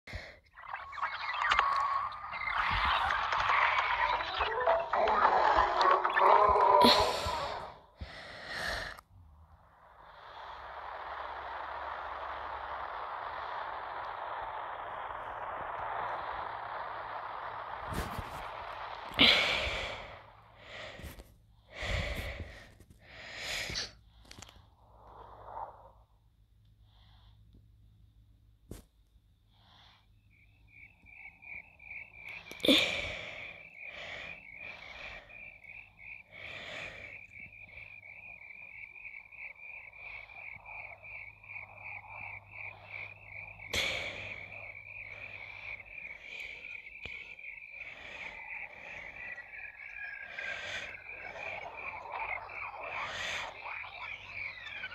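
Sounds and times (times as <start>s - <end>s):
steady hiss: 9.6s - 21.2s
rhythmic animal chirping: 44.6s - 54.9s.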